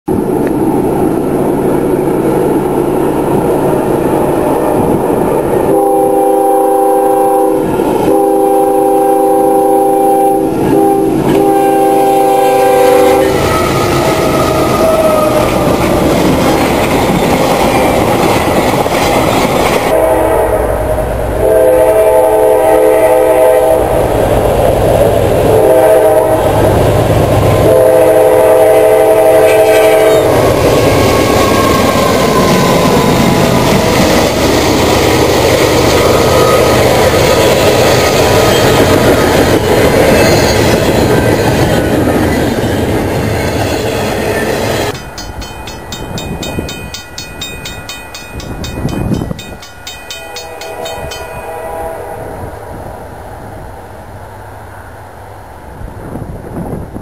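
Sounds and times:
train rumbling on rails: 0.1s - 57.0s
train air horn blasts: 5.6s - 15.4s, 19.8s - 24.1s, 25.4s - 26.8s, 27.6s - 30.5s, 50.1s - 53.0s.

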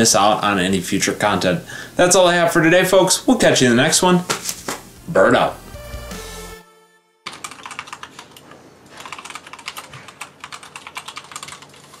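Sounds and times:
music: 4.9s - 7.3s
mechanical keyboard typing: 7.3s - 8.4s, 9.0s - 12.0s.

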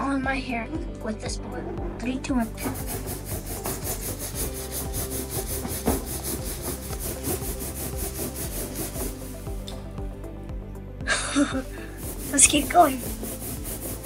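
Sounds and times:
balloon rubbing on hair: 2.3s - 9.7s, 11.3s - 14.0s.

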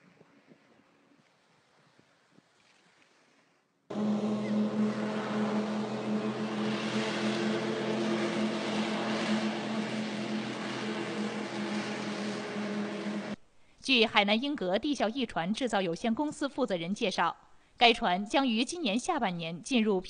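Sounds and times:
propeller engine running: 3.9s - 13.4s
rushing noise: 3.9s - 13.4s.

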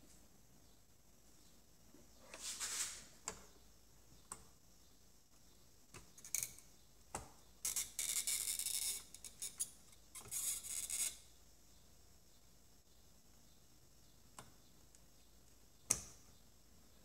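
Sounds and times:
high scratchy hiss: 2.0s - 3.4s.

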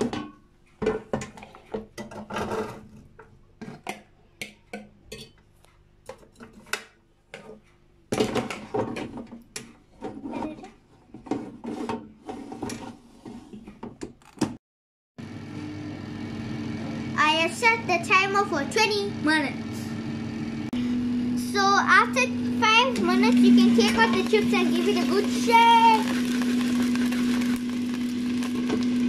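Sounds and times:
fork scraping plastic bowl: 10.0s - 13.6s, 23.0s - 28.9s.

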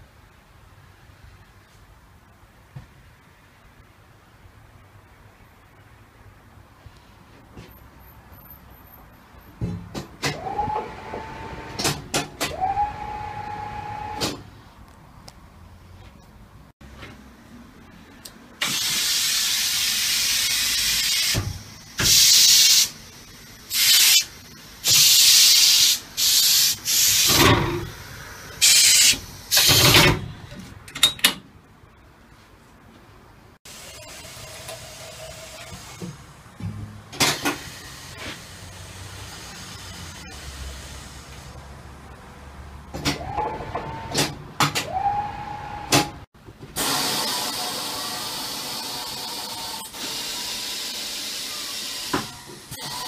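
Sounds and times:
compressed-air hisses: 18.6s - 21.4s, 22.0s - 23.0s, 23.7s - 29.8s.

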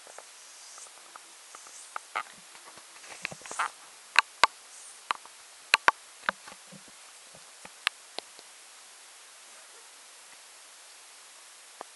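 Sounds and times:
sharp clicks and taps: 5.8s - 6.5s.

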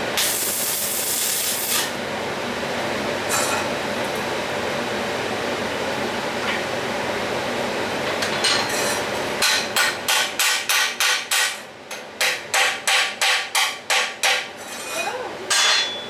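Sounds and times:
hammer striking metal: 9.4s - 14.5s, 15.5s - 16.0s.

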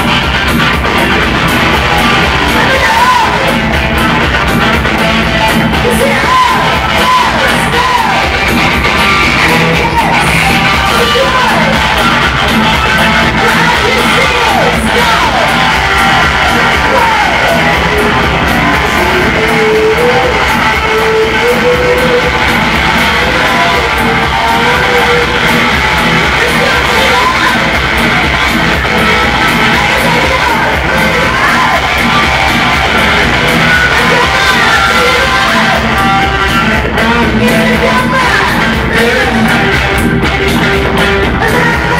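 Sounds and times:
bass guitar: 0.0s - 41.9s
electric guitar: 0.0s - 41.9s
live rock band playing: 0.0s - 41.9s
woman singing: 5.8s - 8.3s, 9.3s - 11.9s, 16.4s - 25.6s, 33.7s - 39.8s, 41.3s - 41.9s.

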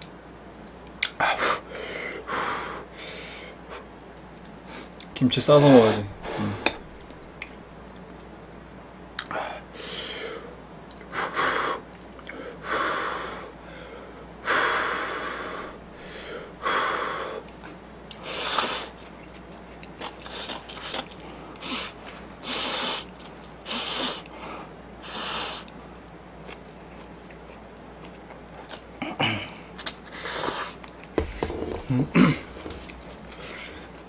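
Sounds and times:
chewing: 18.9s - 22.4s, 25.9s - 28.9s.

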